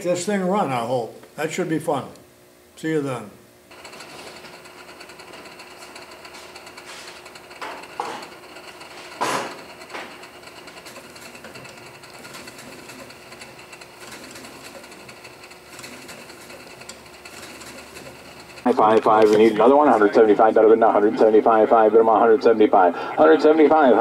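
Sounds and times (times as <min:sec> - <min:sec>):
hot air engine clicking: 0:03.7 - 0:19.4.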